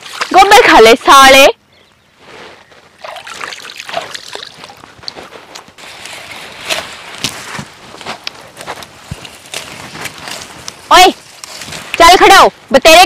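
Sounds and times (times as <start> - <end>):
water splashing and trickling: 0.0 - 1.4, 3.0 - 5.3.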